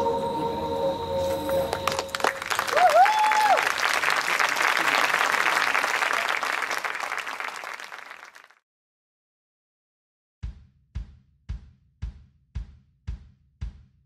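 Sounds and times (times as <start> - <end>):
audience applauding: 1.5 - 8.6.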